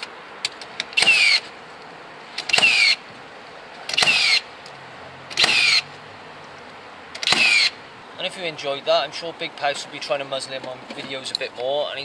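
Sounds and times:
nail gun firing: 1.0 - 1.4, 3.9 - 4.4, 5.3 - 5.8, 7.2 - 7.7.

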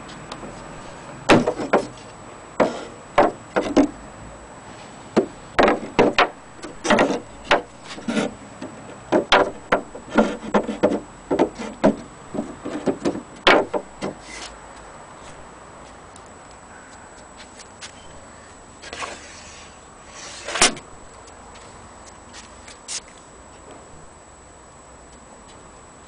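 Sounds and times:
knocks on hollow wooden clock case: 2.6 - 3.9, 9.1 - 14.2.

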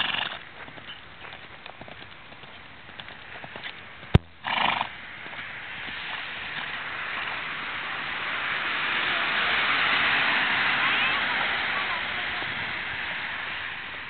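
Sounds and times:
horse hoofbeats on dirt: 0.0 - 7.5.

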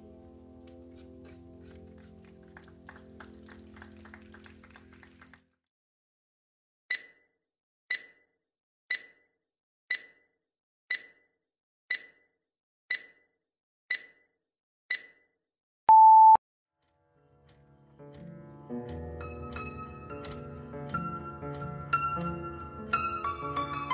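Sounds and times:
timer ticking: 6.9 - 7.2, 7.9 - 8.2, 8.9 - 9.2, 9.9 - 10.2, 10.9 - 11.2, 11.9 - 12.2, 12.9 - 13.2, 13.9 - 14.2, 14.9 - 15.2
steady beep: 15.9 - 16.4.

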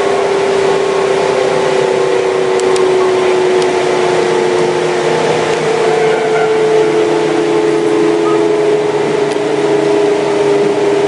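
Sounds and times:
train inverter whine: 0.0 - 11.0
train rumbling on track: 0.0 - 11.0
low tone: 6.2 - 10.1.

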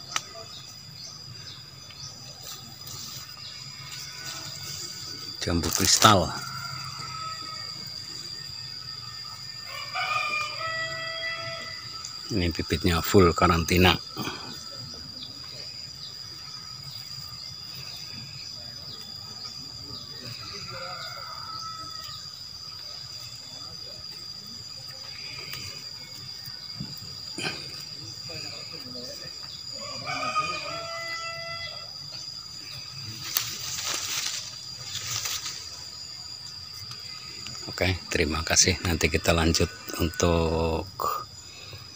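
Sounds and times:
insects buzzing drone: 0.0 - 41.9
rooster crowing: 3.0 - 12.5, 20.1 - 23.4, 29.0 - 33.1
leaves rustling against phone: 33.0 - 36.0.

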